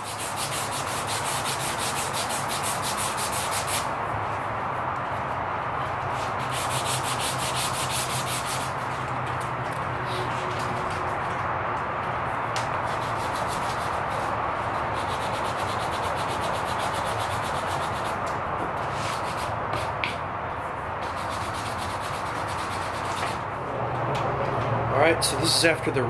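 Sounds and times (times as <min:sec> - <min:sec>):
sandpaper scratching on wood: 0:00.0 - 0:03.9, 0:06.1 - 0:09.0, 0:12.8 - 0:20.0, 0:21.0 - 0:23.5.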